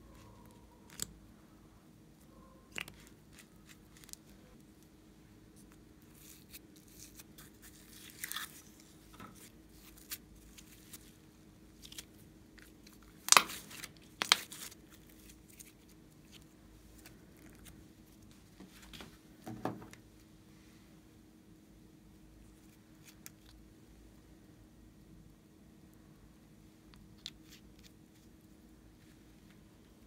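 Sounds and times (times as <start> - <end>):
wet slime crackles: 11.8 - 17.8.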